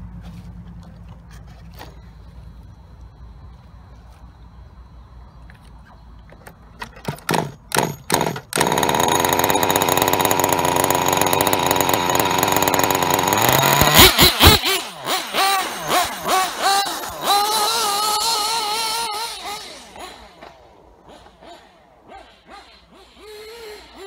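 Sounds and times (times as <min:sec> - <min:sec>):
small two-stroke engine revving: 0:07.1 - 0:24.0.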